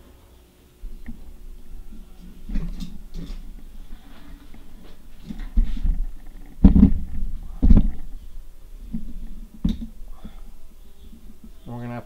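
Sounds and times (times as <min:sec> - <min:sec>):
dull low thumps: 0:05.5 - 0:11.6.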